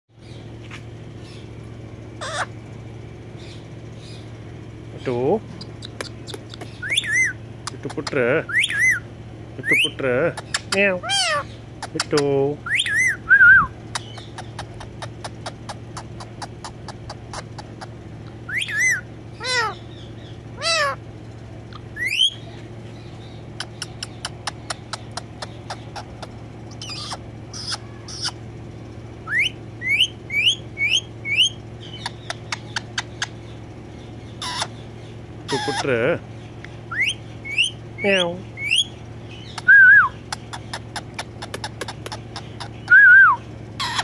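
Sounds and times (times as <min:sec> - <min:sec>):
steady low hum: 0:00.1 - 0:44.0
parakeet calls: 0:01.2 - 0:44.0
sharp clicks: 0:05.7 - 0:06.8, 0:40.3 - 0:42.2.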